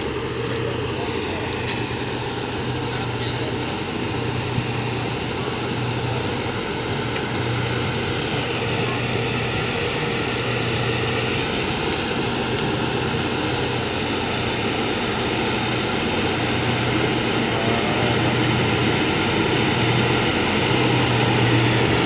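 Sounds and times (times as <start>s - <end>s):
diesel engine droning: 0.0s - 22.0s.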